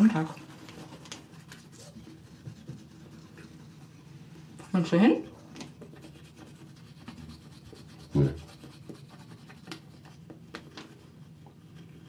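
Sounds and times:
toothbrush scrubbing teeth: 0.0s - 12.0s.

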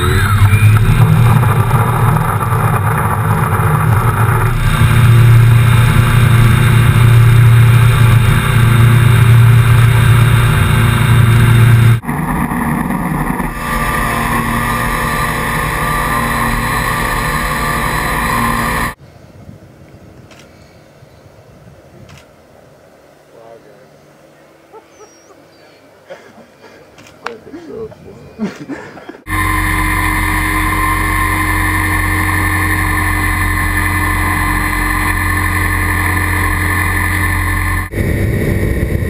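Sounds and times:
drone motor and propeller: 0.0s - 19.0s, 29.3s - 39.0s.

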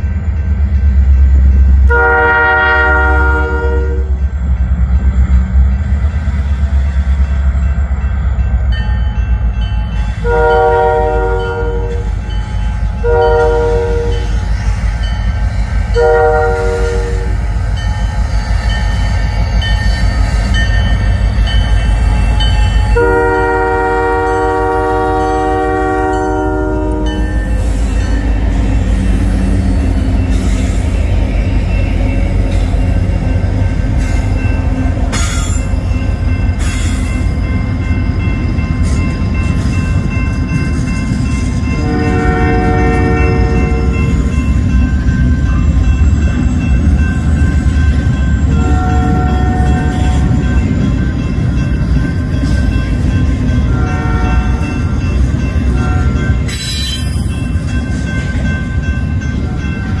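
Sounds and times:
diesel locomotives rumbling: 0.0s - 60.0s
train wheels rumbling: 0.0s - 60.0s
train air horn blasts: 1.9s - 4.2s, 10.2s - 12.1s, 13.0s - 14.4s, 15.9s - 17.4s, 23.0s - 27.2s, 41.8s - 44.1s, 48.5s - 50.2s, 53.7s - 54.8s, 55.7s - 56.9s.

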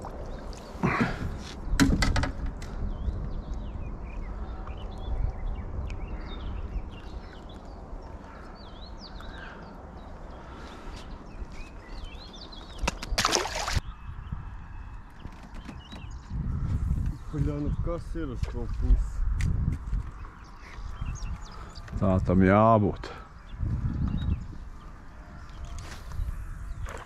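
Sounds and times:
water splashing: 0.0s - 1.2s, 12.8s - 13.8s
wind rumble on microphone: 0.0s - 27.0s
small birds chirping: 2.7s - 27.0s.

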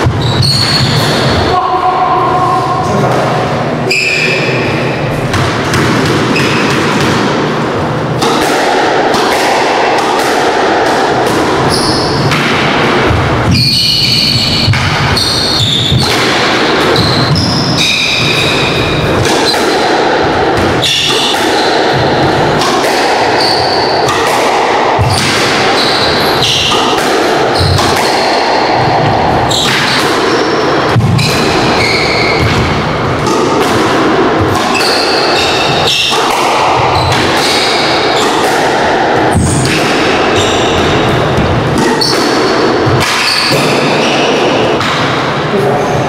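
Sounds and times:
sneakers squeaking on wooden floor: 0.0s - 1.5s, 11.7s - 12.3s, 13.5s - 16.1s, 16.9s - 19.1s, 23.4s - 24.1s, 27.6s - 27.8s, 29.5s - 33.1s, 36.8s - 38.4s, 39.3s - 44.4s
squash ball cracking off rackets: 5.3s - 45.3s.

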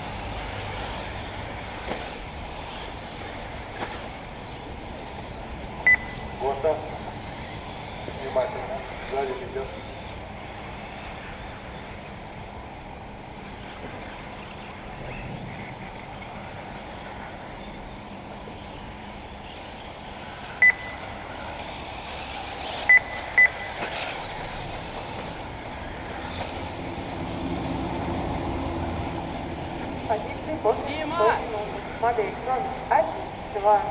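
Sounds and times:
outdoor race background noise: 0.0s - 33.9s
short high beeps: 5.9s - 6.4s, 20.6s - 21.1s, 22.9s - 23.8s.

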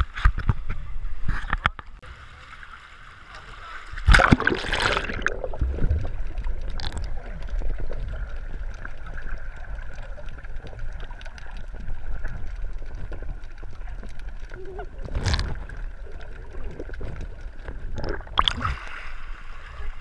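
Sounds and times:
muffled underwater rumble: 0.3s - 20.0s
splash: 2.2s - 7.1s, 17.9s - 20.0s.

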